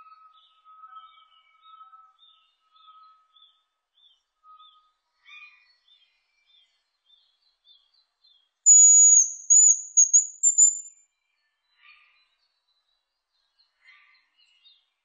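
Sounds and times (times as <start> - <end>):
faint bird chirps: 8.7 - 10.9
high whistled bird song: 8.7 - 10.9.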